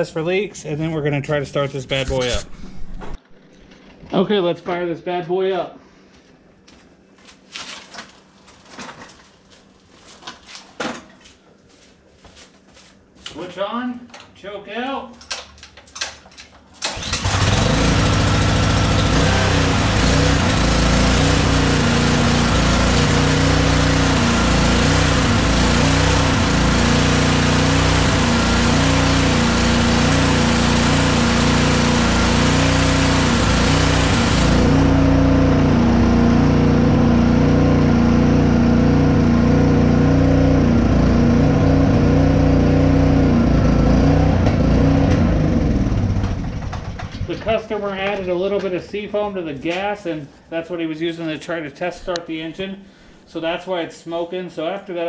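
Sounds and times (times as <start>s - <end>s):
small engine running: 16.9s - 47.2s.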